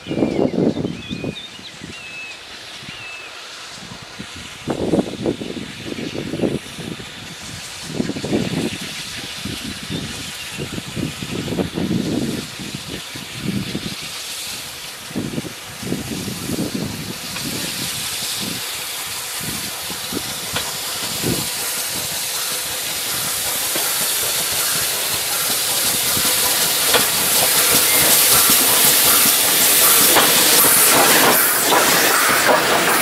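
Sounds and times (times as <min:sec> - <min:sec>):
steam locomotive hissing: 0:00.0 - 0:33.0
wheels clicking on rails: 0:07.5 - 0:33.0.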